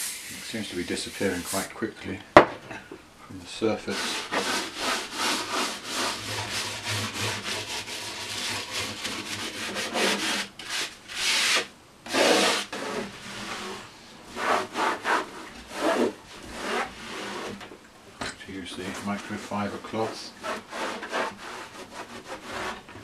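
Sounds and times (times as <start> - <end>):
cloth wiping strokes: 0.0 - 1.7
scrubbing on grille cloth: 0.0 - 1.7, 3.8 - 17.5.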